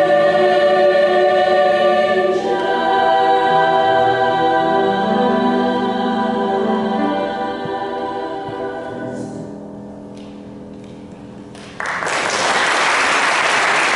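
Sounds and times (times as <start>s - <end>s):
women's chorus singing: 0.0s - 9.6s
audience applause: 11.6s - 13.9s.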